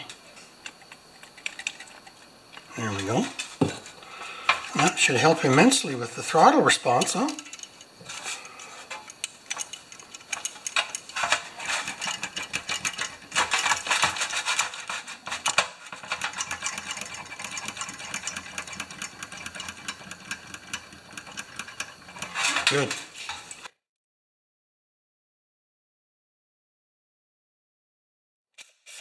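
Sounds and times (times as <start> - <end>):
metallic clicking of throttle linkage: 8.9 - 14.0, 15.4 - 23.7.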